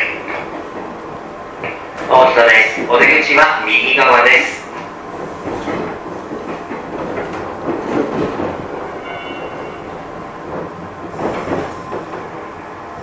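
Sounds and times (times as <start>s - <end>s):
wheels clattering over rail joints: 5.1s - 12.6s.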